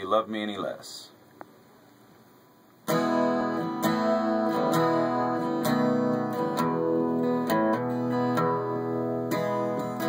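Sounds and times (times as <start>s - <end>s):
acoustic guitar strummed slowly: 2.8s - 10.0s.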